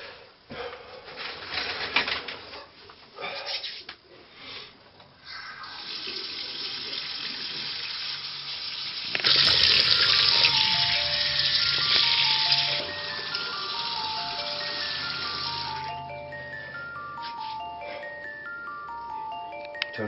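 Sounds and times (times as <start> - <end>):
faucet running into sink: 5.6 - 15.9
simple melody music: 9.4 - 20.0.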